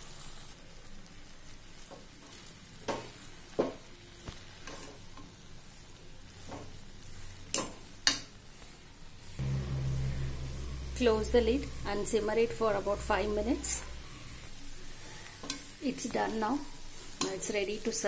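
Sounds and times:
light sizzle: 0:00.0 - 0:18.0
spoon stirring food in a pan: 0:01.8 - 0:05.4.

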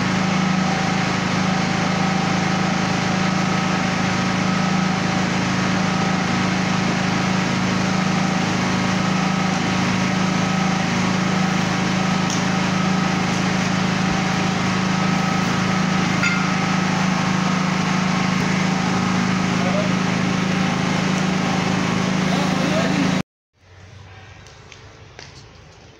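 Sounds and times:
engine droning: 0:00.0 - 0:25.8.

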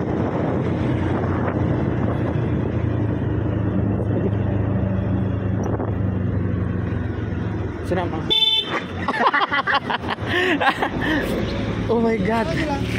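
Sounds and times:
wind buffeting microphone: 0:00.0 - 0:06.8
low engine tone: 0:00.0 - 0:12.9.

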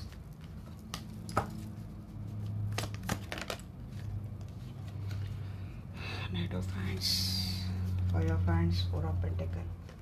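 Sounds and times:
cards snapping and tapping: 0:00.0 - 0:01.7, 0:02.6 - 0:04.5.

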